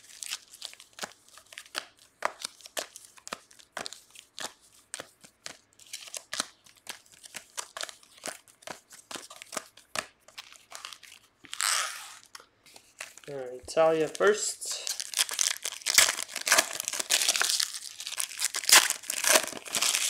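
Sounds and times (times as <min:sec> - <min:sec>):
foil wrappers crinkling: 0:10.3 - 0:20.0.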